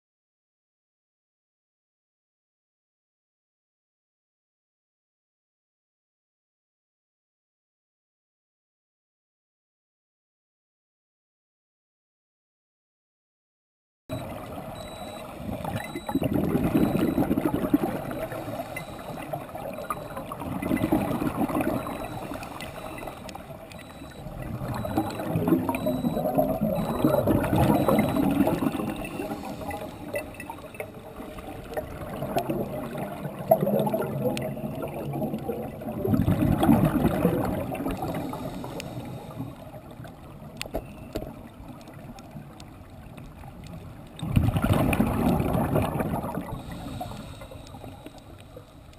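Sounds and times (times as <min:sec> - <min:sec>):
exhaled air bubbling underwater: 0:14.1 - 0:48.9.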